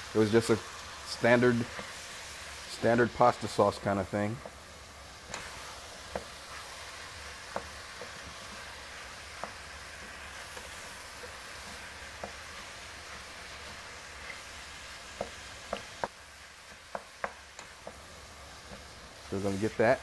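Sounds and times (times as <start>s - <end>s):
meat sizzling in a pot: 0.0s - 20.0s
wooden spoon knocking a pot: 7.5s - 8.2s, 9.4s - 12.6s, 15.1s - 16.2s, 16.9s - 18.0s.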